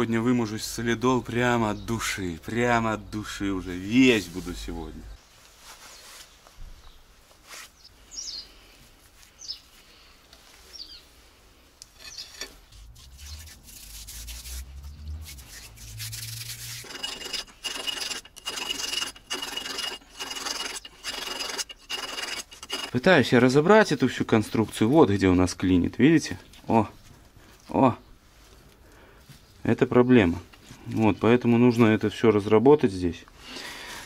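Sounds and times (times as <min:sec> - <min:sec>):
hand rubbing inside axle housing: 0:12.0 - 0:23.1.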